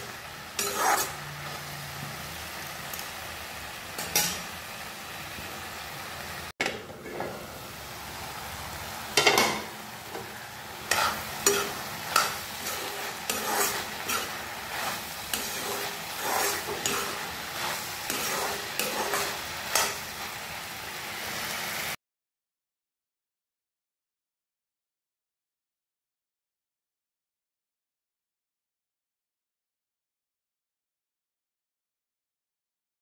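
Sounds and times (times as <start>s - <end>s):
metal spatula scraping a pan: 0.0s - 2.0s, 4.0s - 4.6s, 9.2s - 20.4s
frying sizzle: 0.0s - 22.0s.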